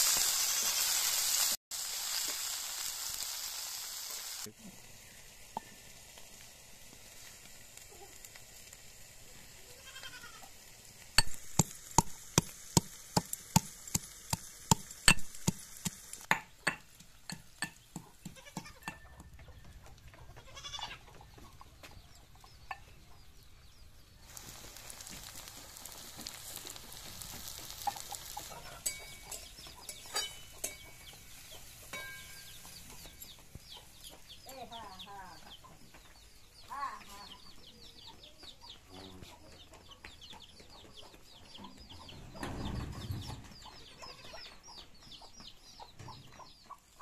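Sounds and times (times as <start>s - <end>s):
metal pestle pounding in mortar: 11.2s - 19.3s.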